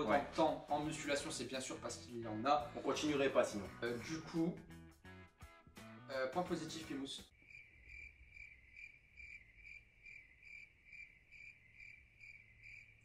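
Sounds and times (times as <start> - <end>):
crickets chirping: 7.3 - 13.0.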